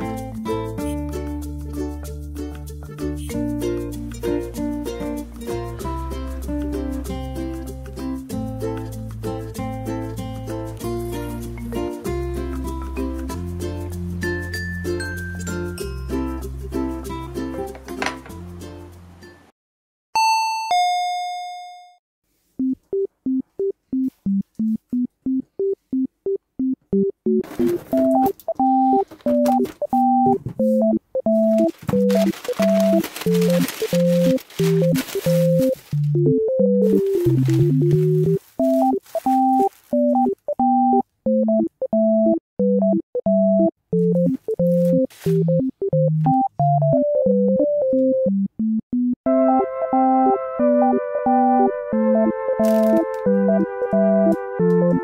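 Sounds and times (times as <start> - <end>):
two-note doorbell chime: 20.2 - 22.0
synthesizer tune: 26.6 - 55.0.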